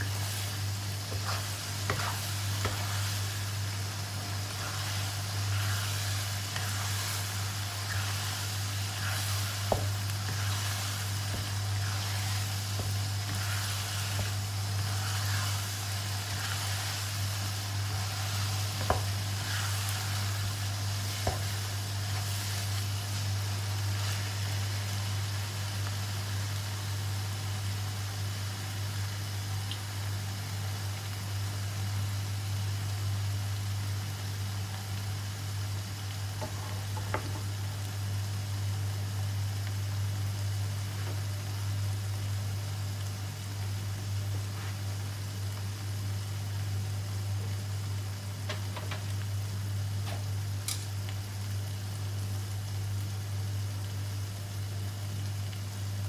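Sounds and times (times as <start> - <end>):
steady low hum: 0.0 - 25.7
paste sizzling in a wok: 0.0 - 56.0.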